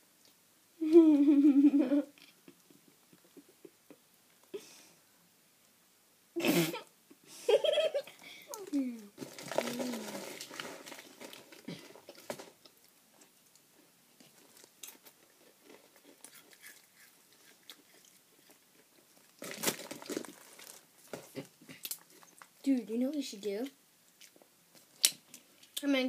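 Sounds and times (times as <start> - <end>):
chewing and crunching crackers: 8.5 - 22.6, 24.1 - 25.8.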